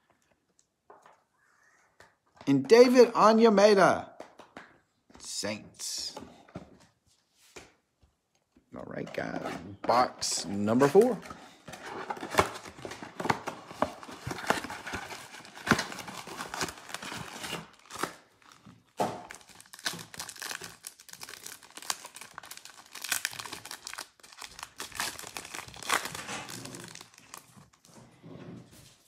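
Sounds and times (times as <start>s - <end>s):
foil packs crinkling and ripping: 11.8s - 27.8s.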